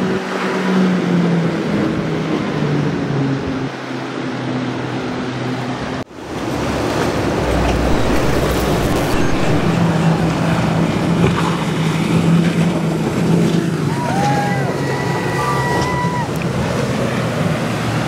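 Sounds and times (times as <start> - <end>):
motorboat engine running: 0.0 - 18.0
rushing water: 0.0 - 18.0
wind: 0.0 - 18.0.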